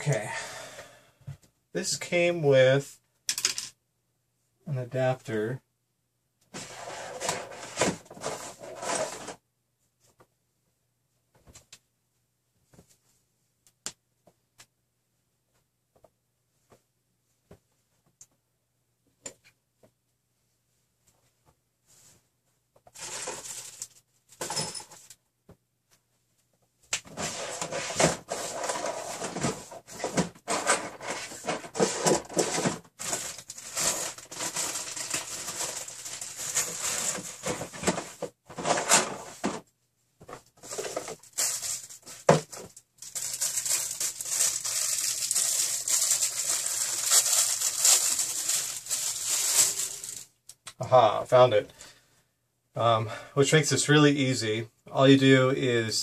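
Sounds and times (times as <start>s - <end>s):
rustling through packaging: 6.6s - 9.4s, 23.0s - 24.0s, 27.1s - 39.6s, 40.6s - 50.3s.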